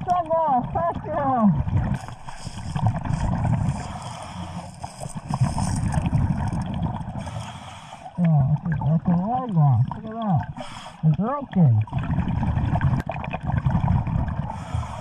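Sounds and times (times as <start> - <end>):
underwater regulator breathing: 1.8 - 8.3, 10.4 - 11.2, 14.4 - 15.0
muffled voice: 8.2 - 11.9.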